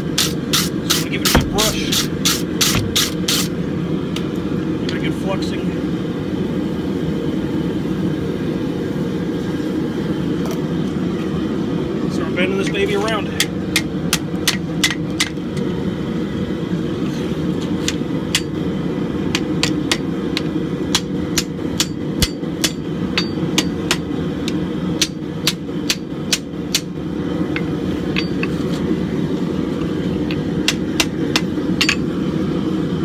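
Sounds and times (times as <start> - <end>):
low background rumble: 0.0 - 33.0
hammer striking hot metal on anvil: 13.1 - 15.4, 17.9 - 18.6, 19.3 - 28.5, 30.3 - 32.2.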